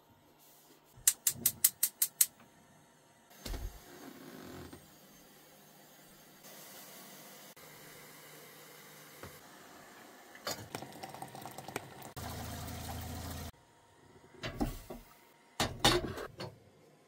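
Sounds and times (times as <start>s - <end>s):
tap water running into kettle: 10.3s - 13.5s.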